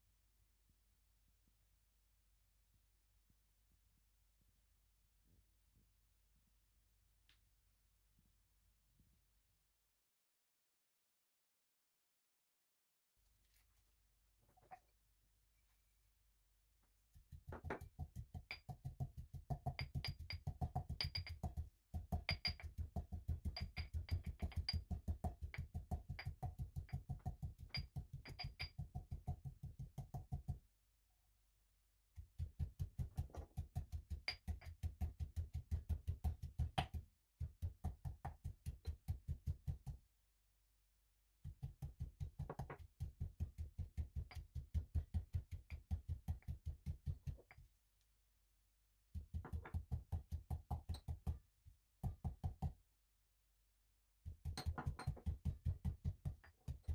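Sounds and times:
pestle pounding in mortar: 17.4 - 30.6, 32.3 - 40.0, 41.4 - 47.5, 49.2 - 51.4, 52.0 - 52.7, 54.3 - 56.9.

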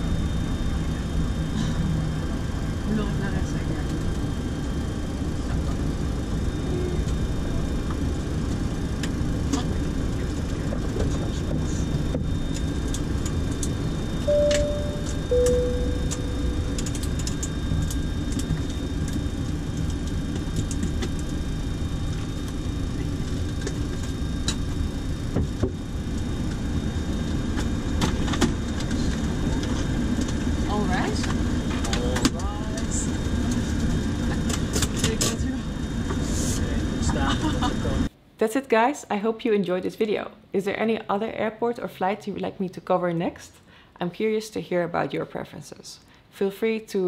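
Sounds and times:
cockpit hum: 0.0 - 38.1
two-tone chime: 14.3 - 16.8.

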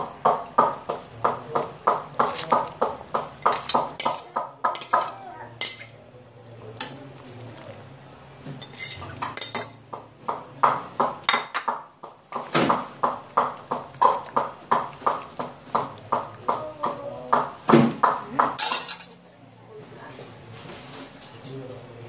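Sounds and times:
metal spoon scraping on plate: 8.6 - 9.8
clopping beat: 12.0 - 18.6.

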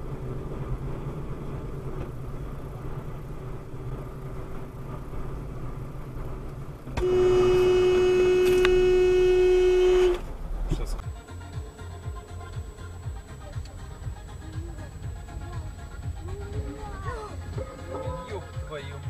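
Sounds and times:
car road and engine rumble: 0.0 - 19.0
car horn steady tone: 6.9 - 10.4.

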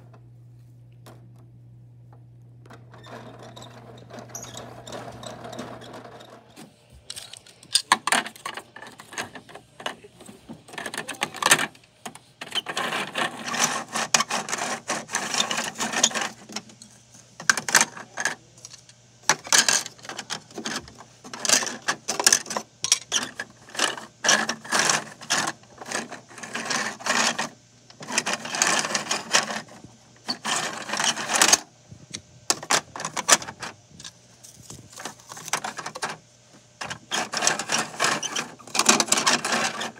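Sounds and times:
plastic pieces clattering: 7.1 - 10.0, 12.5 - 29.7, 36.8 - 39.9
toy truck plastic clicking and rattling: 7.1 - 10.0, 10.7 - 31.7, 35.0 - 36.2, 36.8 - 39.9.

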